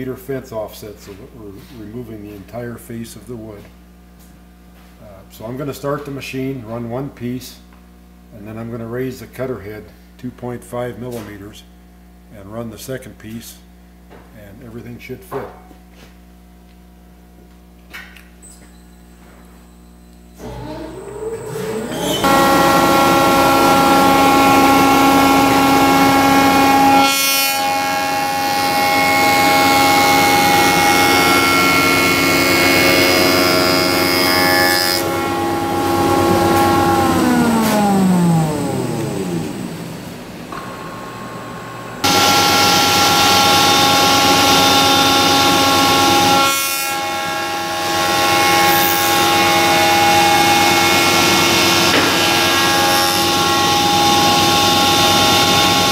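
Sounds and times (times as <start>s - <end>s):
spindle shaper whining: 18.6s - 55.9s
machine spinning down: 20.4s - 34.1s, 35.0s - 55.9s
boards fed through cutter: 20.4s - 55.9s.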